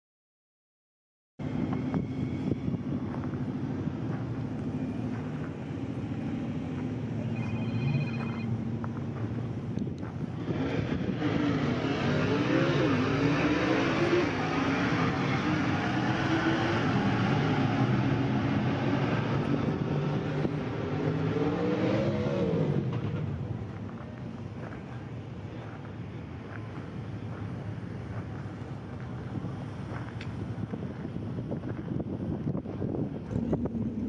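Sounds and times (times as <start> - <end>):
car engine revving: 10.3 - 23.8.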